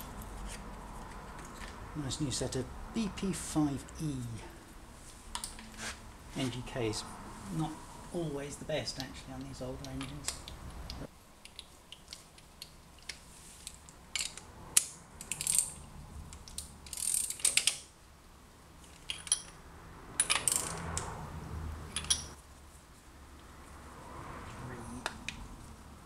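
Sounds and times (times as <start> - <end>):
ratchet wrench clicking: 14.2 - 17.8, 20.2 - 21.1
metallic clinks and taps: 18.8 - 19.6, 21.9 - 22.4.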